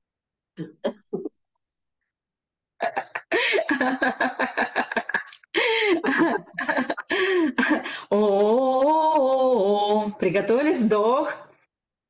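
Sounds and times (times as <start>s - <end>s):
woman vocalising: 8.1s - 10.2s.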